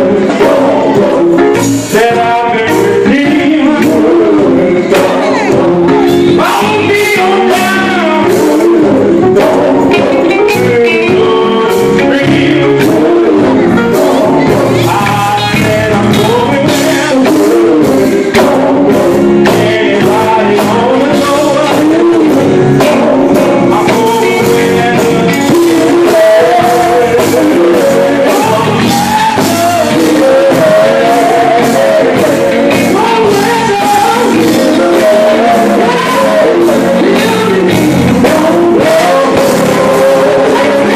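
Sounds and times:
backing voices singing: 0.0s - 40.9s
electric guitar: 0.0s - 40.9s
male lead singer singing: 0.0s - 40.9s
steady driving beat: 0.0s - 40.9s.

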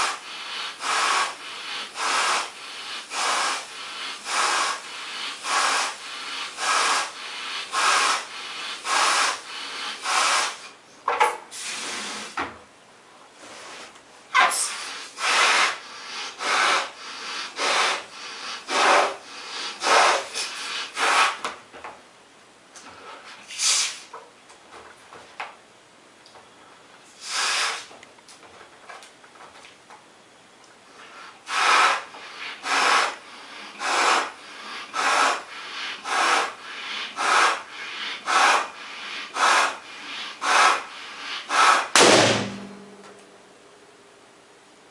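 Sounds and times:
breaths blowing up balloon: 0.0s - 10.8s, 11.5s - 12.4s, 13.6s - 21.5s, 27.2s - 28.0s, 31.0s - 42.2s
balloon bursting with loud pop: 41.9s - 42.8s.

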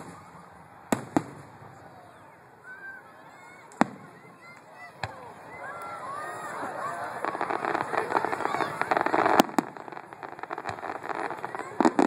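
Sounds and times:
firework shells bursting: 7.0s - 12.0s.

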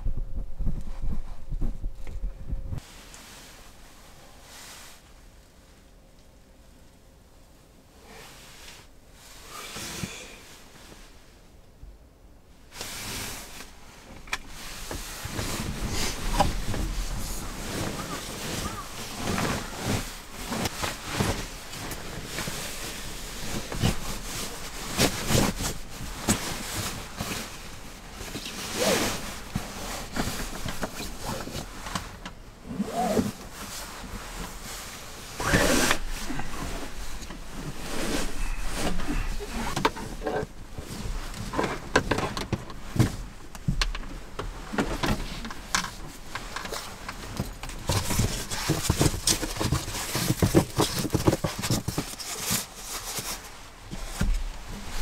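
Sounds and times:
sleeping bag fabric rustling: 12.7s - 55.0s
handling bumps and knocks: 14.2s - 55.0s
foam mat handled: 14.5s - 43.8s, 44.5s - 55.0s.

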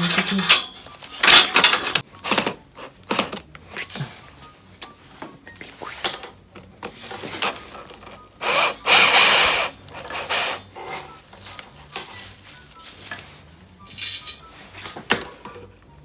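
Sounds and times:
ratchet rasping burst: 7.4s - 10.6s.

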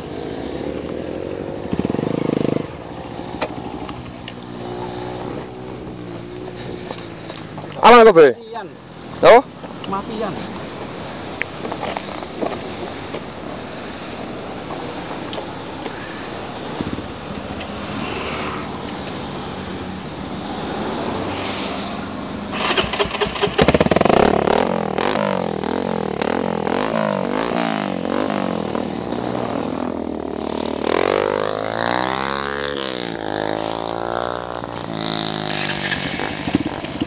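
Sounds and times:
dirt bike engine revving: 17.8s - 37.0s.

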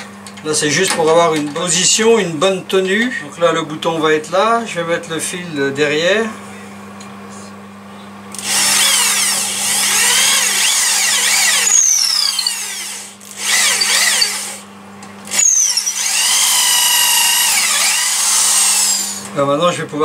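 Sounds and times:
electric drill boring wood: 8.3s - 14.7s, 15.3s - 19.3s.

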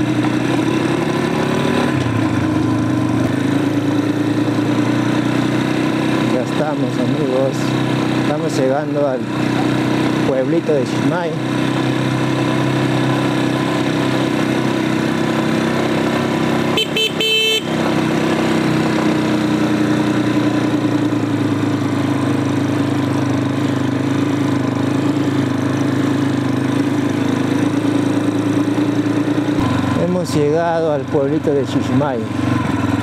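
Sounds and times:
motorcycle engine running: 0.0s - 33.0s
motorcycle horn honk: 16.7s - 18.2s.

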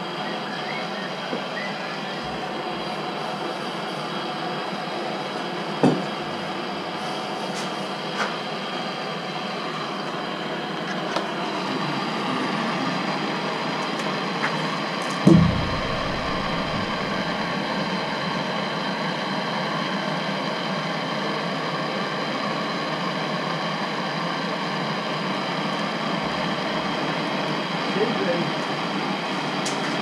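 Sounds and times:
thump: 5.8s - 6.0s, 15.2s - 17.4s.

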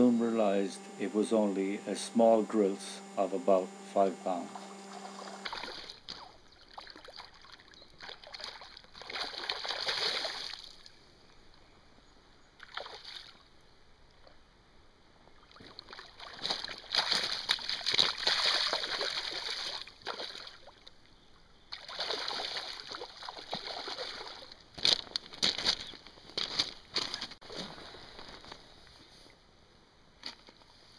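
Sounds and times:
fish thrashing and splashing in water: 5.4s - 10.9s, 12.6s - 13.4s, 15.4s - 20.9s, 21.7s - 25.9s.

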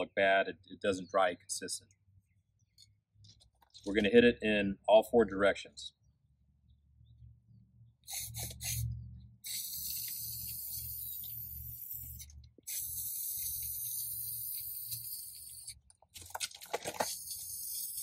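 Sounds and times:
aerosol spray can hissing: 8.0s - 15.8s, 17.0s - 18.0s.

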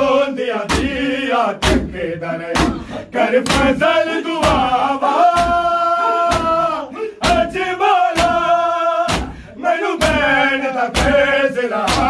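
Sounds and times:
men singing in chorus: 0.0s - 12.0s
hands beating bare chests: 0.7s - 12.0s.

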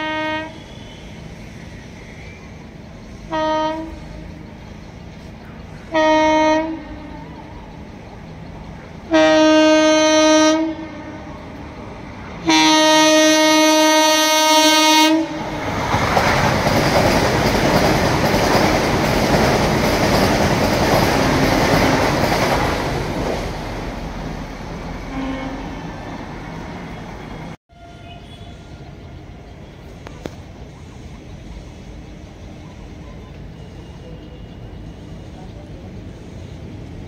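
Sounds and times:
train horn blasts: 0.0s - 1.3s, 3.3s - 4.4s, 5.9s - 7.5s, 9.1s - 11.4s, 12.4s - 15.7s, 25.0s - 26.1s, 27.0s - 29.9s
train rushing past: 0.0s - 37.0s.

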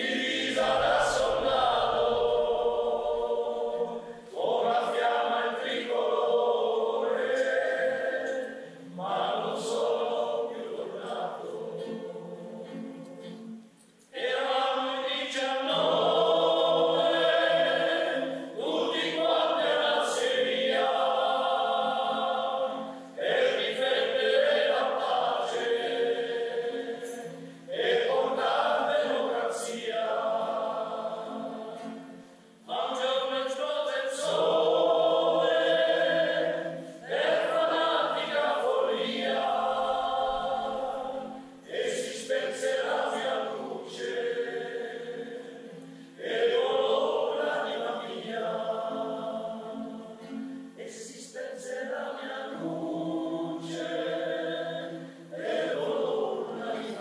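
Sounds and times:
choir singing: 0.0s - 57.0s.

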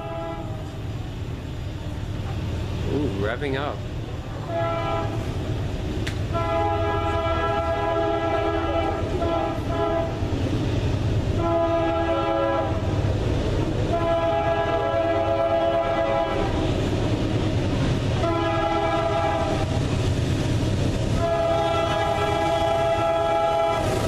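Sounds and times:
locomotive air horn blasts: 0.0s - 0.8s, 4.4s - 5.4s, 6.3s - 10.2s, 11.4s - 12.9s, 13.9s - 16.6s, 18.2s - 19.8s, 21.2s - 24.0s
diesel engines rumbling: 0.0s - 24.0s.

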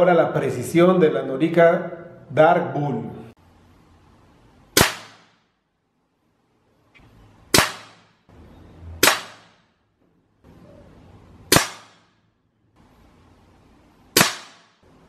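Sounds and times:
air rifle shots: 4.8s - 5.5s, 7.5s - 8.2s, 9.0s - 9.7s, 11.5s - 12.2s, 14.1s - 14.8s.

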